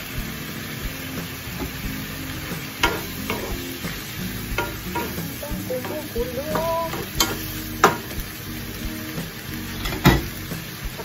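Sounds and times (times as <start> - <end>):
squid sizzling in a pan: 0.0 - 11.0
wooden spatula knocking on pan: 2.8 - 3.6, 4.6 - 5.2.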